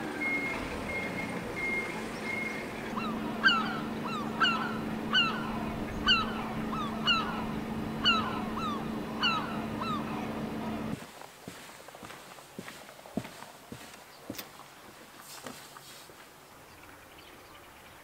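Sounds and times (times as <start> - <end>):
low engine hum: 0.0 - 11.0
gull calling: 0.2 - 11.0.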